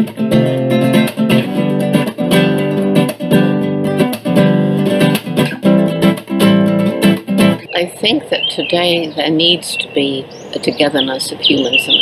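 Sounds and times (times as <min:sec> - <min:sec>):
strummed acoustic guitar: 0:00.0 - 0:09.5.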